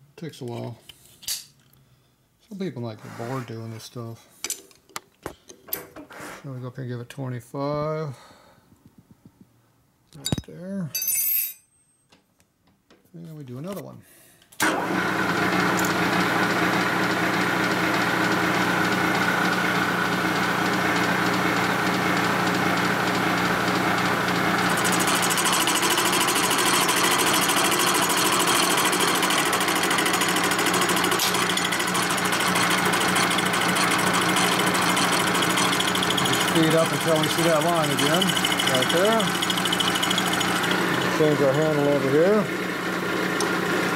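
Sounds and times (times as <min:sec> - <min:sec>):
milling machine spindle hum: 0:14.8 - 0:43.9
cutter grinding through metal: 0:23.9 - 0:42.4.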